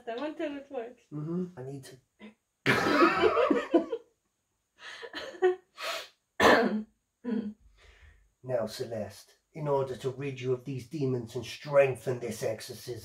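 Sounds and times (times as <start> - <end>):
stifled laughter: 2.7 - 4.0.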